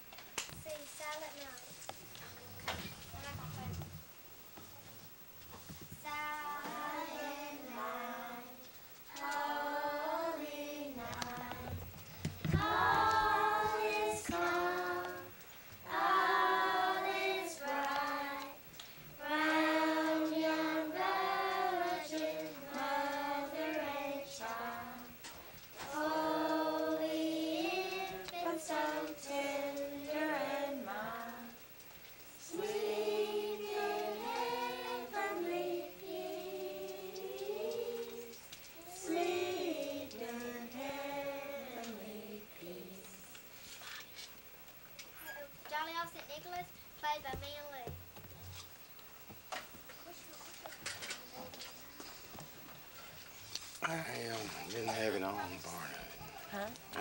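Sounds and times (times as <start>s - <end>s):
children singing a carol: 6.0s - 18.6s, 19.2s - 31.7s, 32.4s - 43.3s.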